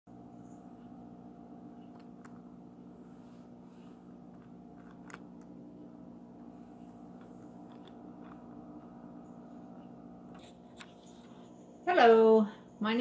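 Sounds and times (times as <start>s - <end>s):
steady low hum: 0.1s - 13.0s
phone handling clicks and rustles: 4.2s - 5.7s, 7.0s - 8.9s.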